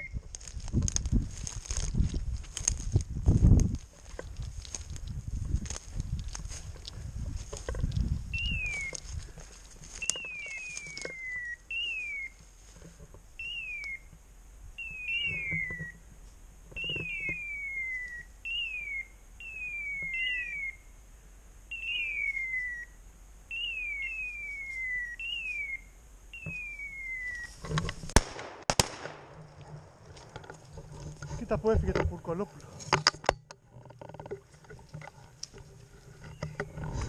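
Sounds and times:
brush rustling underfoot: 0:00.0 - 0:18.2, 0:24.2 - 0:37.0
beeper collar falling chirp: 0:14.8 - 0:16.0.

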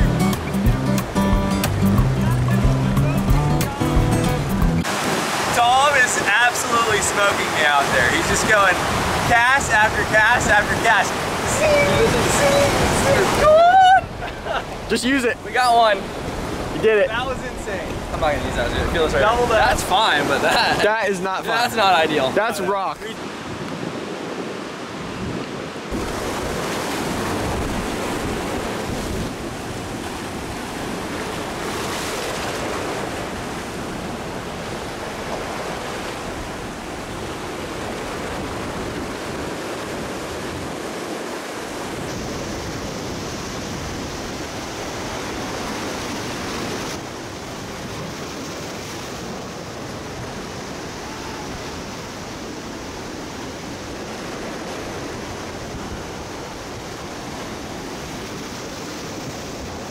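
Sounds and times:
ocean surf breaking: 0:00.0 - 0:59.9
wind on microphone: 0:08.1 - 0:14.9, 0:23.2 - 0:59.9.

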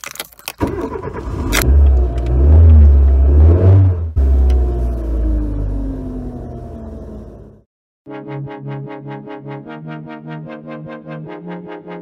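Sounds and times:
car engine revving: 0:01.0 - 0:07.7.

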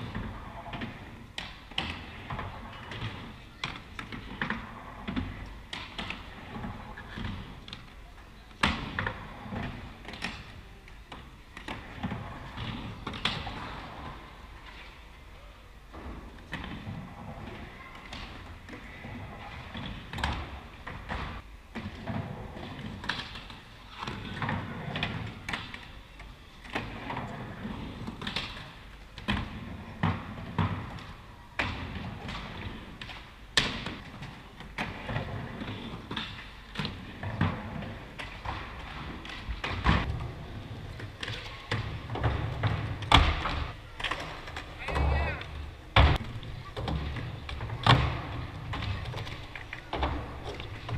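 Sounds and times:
skateboard wheels rolling: 0:00.0 - 0:15.3, 0:15.9 - 0:50.9
skateboard thuds and slaps: 0:26.6 - 0:50.9.

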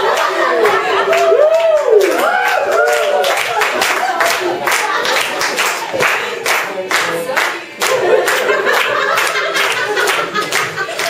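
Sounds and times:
hands clapping along: 0:00.0 - 0:11.0.

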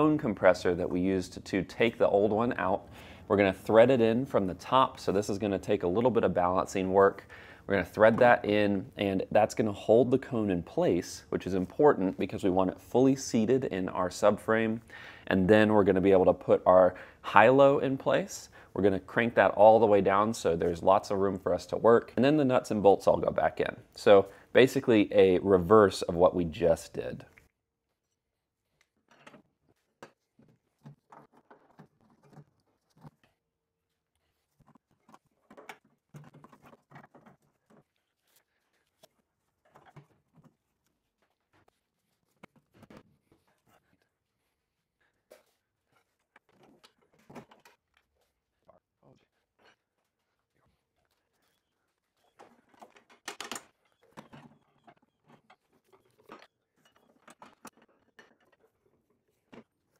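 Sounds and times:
faint knocks taps and scraping: 0:03.7 - 0:09.6, 0:27.2 - 0:59.9
clicks and rattles of parts handled: 0:52.3 - 0:59.8.

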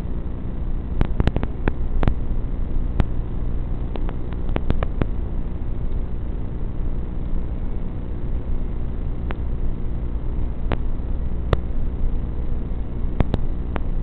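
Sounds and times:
sharp clicks: 0:01.0 - 0:02.2, 0:03.9 - 0:05.1, 0:13.2 - 0:13.9.

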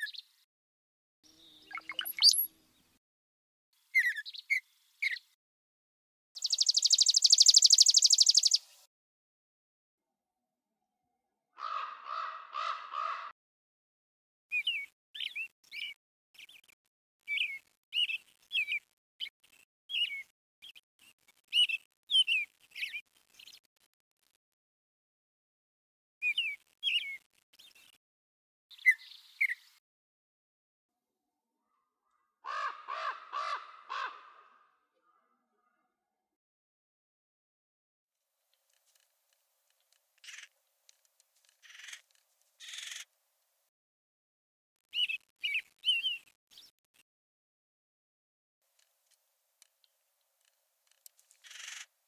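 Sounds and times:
quick bird chirps: 0:42.6 - 0:43.0.

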